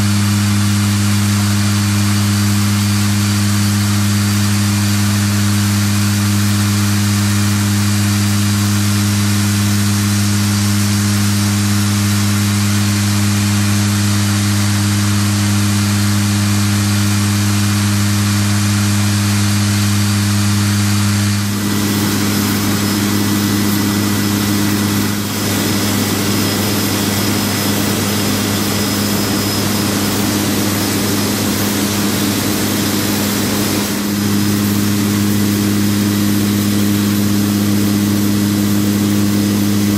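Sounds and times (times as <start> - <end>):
turboprop engines humming: 0.0 - 39.9
airflow hiss: 21.4 - 37.4.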